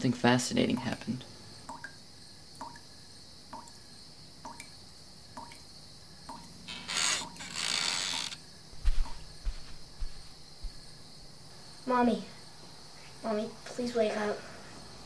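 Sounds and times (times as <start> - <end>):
tap dripping: 0.7 - 2.0, 2.6 - 2.9, 3.5 - 5.7, 6.3 - 6.5.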